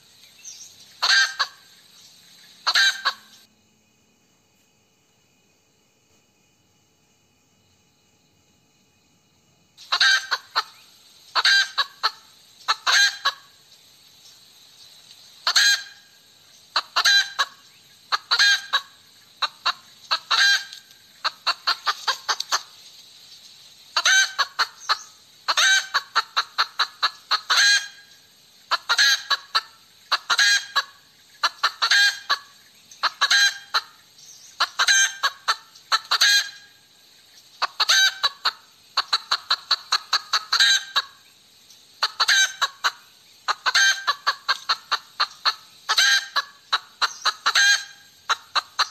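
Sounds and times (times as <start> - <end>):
hen cackling: 1.0 - 1.8, 2.6 - 3.5, 9.8 - 13.6, 15.4 - 22.8, 23.9 - 36.8, 37.5 - 41.3, 42.0 - 48.9.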